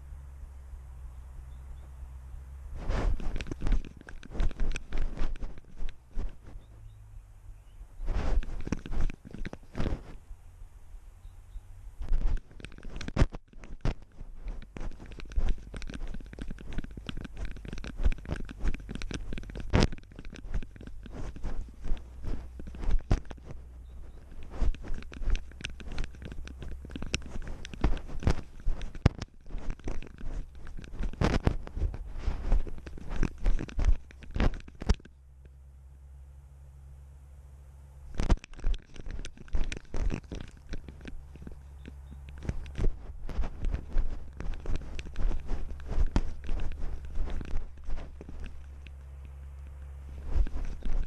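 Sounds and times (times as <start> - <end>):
camera mount rubbing and knocking: 2.8 - 6.7, 8.0 - 10.2, 12.0 - 35.2, 38.1 - 51.0
paws crunching on gravel: 2.8 - 6.7, 12.1 - 35.1, 38.2 - 51.0.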